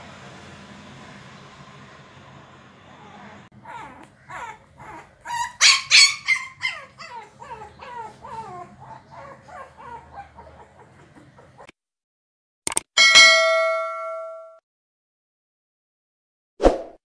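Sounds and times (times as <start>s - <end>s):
puppy whining and yelping: 2.9s - 11.7s.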